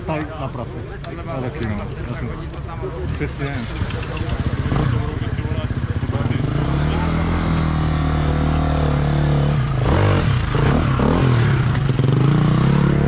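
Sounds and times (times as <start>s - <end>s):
motorcycle engine revving: 3.3s - 13.0s.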